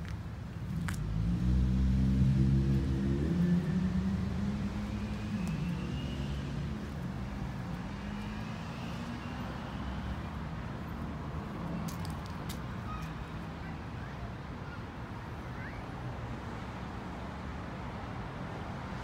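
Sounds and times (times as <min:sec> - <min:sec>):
vehicle engine humming: 0:00.0 - 0:12.2.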